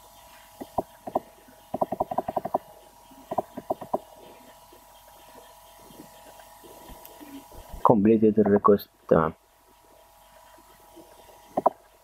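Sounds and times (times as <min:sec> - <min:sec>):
faint steady hum: 0:00.0 - 0:12.0
computer mouse clicking: 0:00.6 - 0:02.6, 0:03.3 - 0:04.0, 0:11.6 - 0:11.8.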